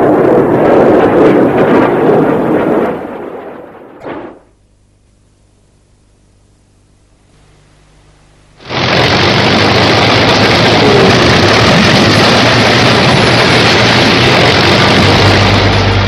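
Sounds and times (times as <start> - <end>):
jet engine roar: 0.0 - 4.5, 8.6 - 16.0.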